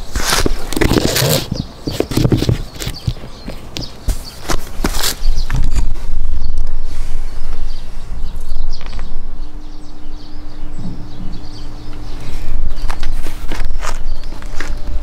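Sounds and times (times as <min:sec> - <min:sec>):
faint steady hum: 0:00.0 - 0:15.0
loud low rumble: 0:06.1 - 0:13.2.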